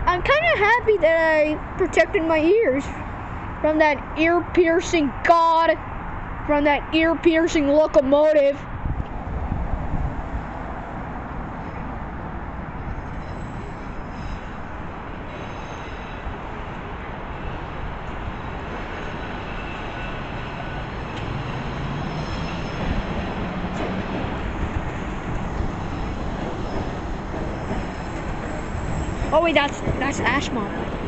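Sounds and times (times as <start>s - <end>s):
subway train rumbling on track: 0.0s - 4.2s, 8.2s - 31.0s
faint high wheel squeal: 12.8s - 14.7s, 15.3s - 16.4s, 18.7s - 23.4s, 25.8s - 29.5s.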